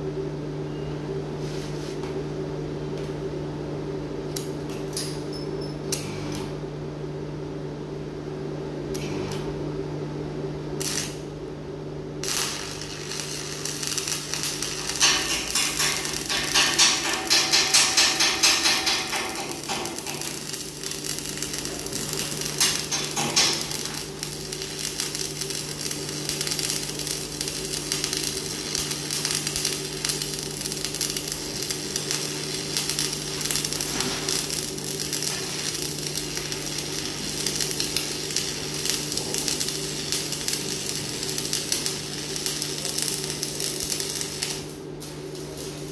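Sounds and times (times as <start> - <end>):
welding arc crackling: 10.8 - 11.2, 12.2 - 45.9.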